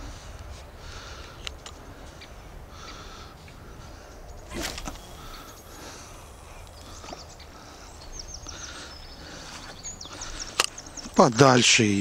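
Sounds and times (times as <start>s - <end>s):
faint bird chirps: 2.2s - 11.2s.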